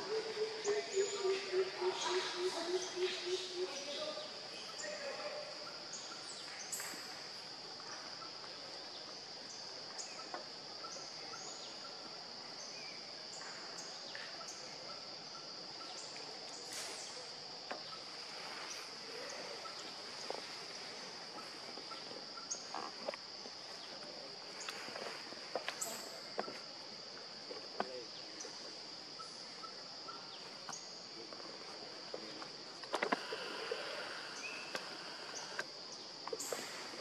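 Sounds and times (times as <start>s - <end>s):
insects droning: 0.0s - 37.0s.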